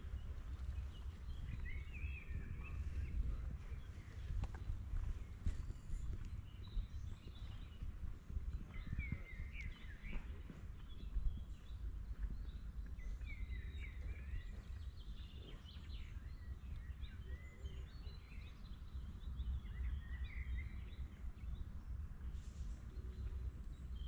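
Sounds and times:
songbirds chirping and singing: 0.0 - 24.0
wind rumble on microphone: 0.0 - 24.0.

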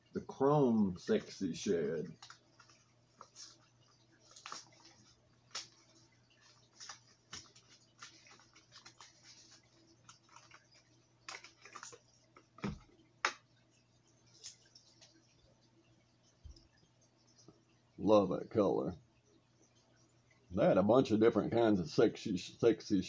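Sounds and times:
plastic package crinkling: 4.2 - 12.8.

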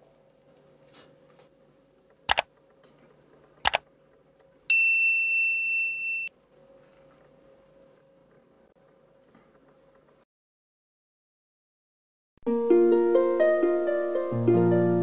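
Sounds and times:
mouse clicks: 2.3 - 2.5, 3.6 - 3.8
notification bell ding: 4.7 - 6.3.

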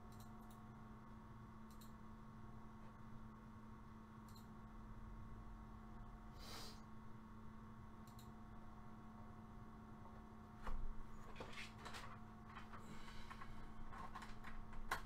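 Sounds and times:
steady low hum: 0.0 - 15.0
soft clicks: 0.1 - 0.6, 1.7 - 2.0, 4.2 - 4.5, 8.0 - 8.4.

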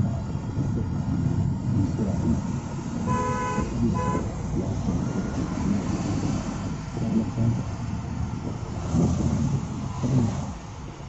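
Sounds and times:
road and engine rumble: 0.0 - 11.0
vehicle horn honking: 3.0 - 4.3.

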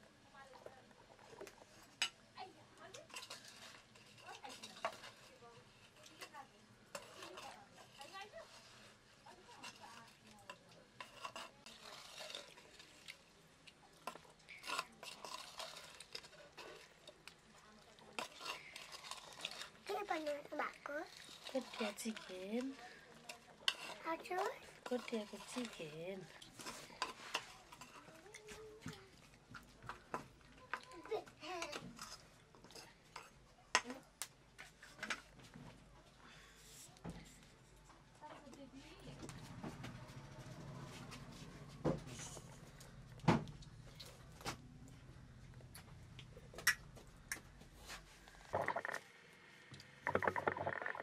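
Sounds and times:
metal spoon scraping clay pot: 2.9 - 13.1, 14.0 - 17.1, 18.1 - 28.4.

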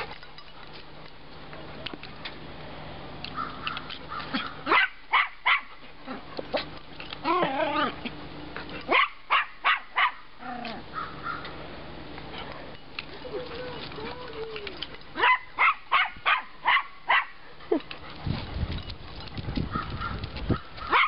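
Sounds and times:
dog barking: 4.7 - 5.7, 8.9 - 10.2, 15.2 - 17.4.

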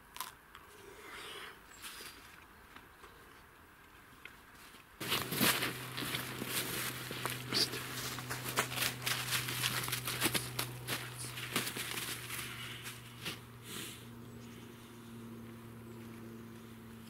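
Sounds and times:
groundsheet and sleeping pad rustling: 4.5 - 14.1.

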